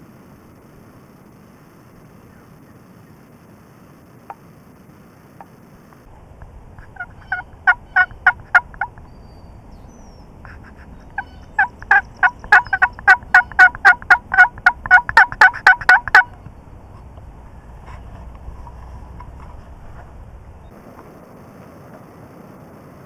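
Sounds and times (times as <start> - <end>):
loud turkey yelps: 6.8 - 9.3, 10.4 - 16.4.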